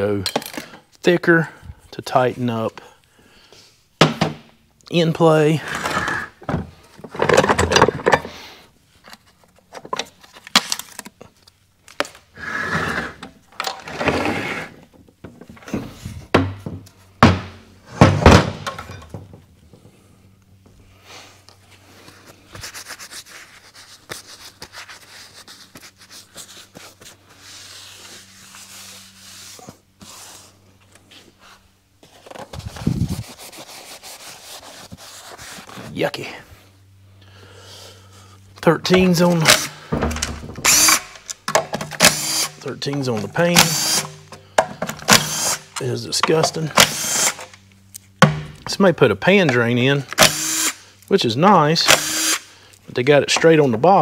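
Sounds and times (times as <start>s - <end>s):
metal parts knocking and clattering: 7.0s - 8.3s.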